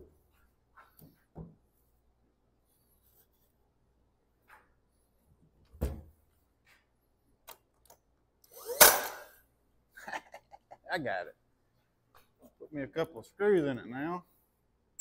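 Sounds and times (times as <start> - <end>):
nail gun firing: 8.6 - 9.3.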